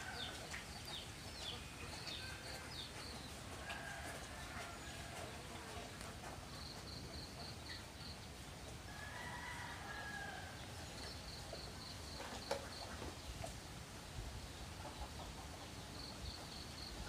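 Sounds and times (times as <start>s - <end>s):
chicken clucking: 0.0s - 8.8s, 14.7s - 17.0s.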